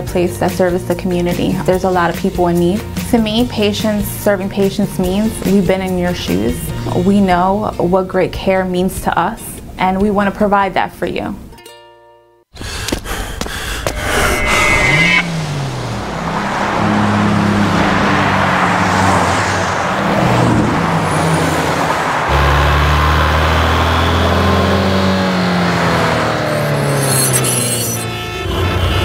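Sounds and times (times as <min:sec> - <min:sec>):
low droning tones: 0:13.3 - 0:18.2
rushing whoosh: 0:13.3 - 0:22.3
gliding tones: 0:13.7 - 0:18.4
deep loud tone: 0:13.8 - 0:18.0.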